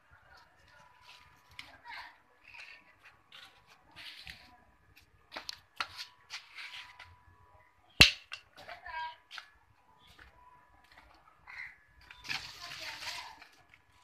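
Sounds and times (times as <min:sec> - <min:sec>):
sandals shuffling on concrete: 0:00.4 - 0:07.2, 0:12.2 - 0:13.8.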